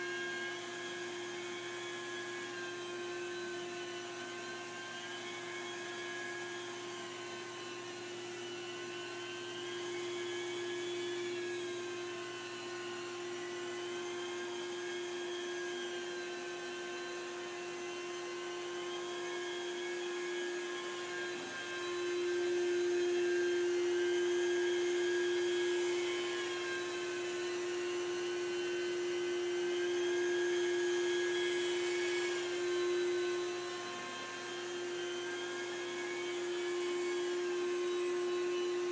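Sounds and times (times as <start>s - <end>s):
motor whine: 0.0s - 38.9s.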